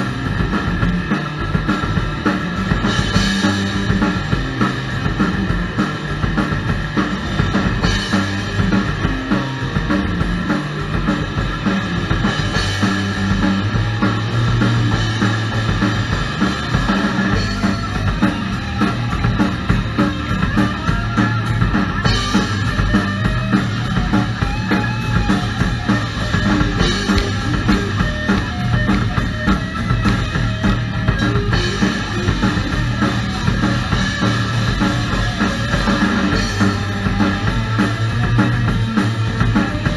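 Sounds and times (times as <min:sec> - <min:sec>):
drum kit: 0:00.0 - 0:39.9
electric bass guitar: 0:00.0 - 0:39.9
rock band playing live: 0:00.0 - 0:39.9.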